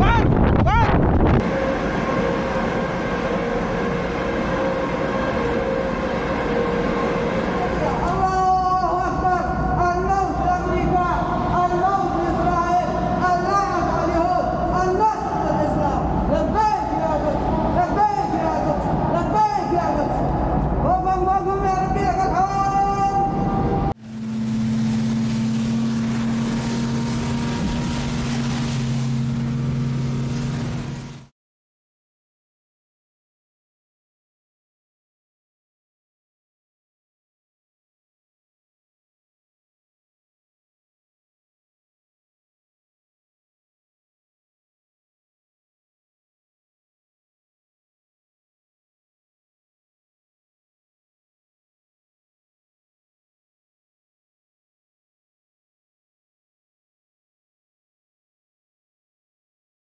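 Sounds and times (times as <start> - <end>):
wind on microphone: 0.0 - 1.5
ship ventilation and machinery drone: 0.8 - 31.3
rushing water: 24.0 - 31.3.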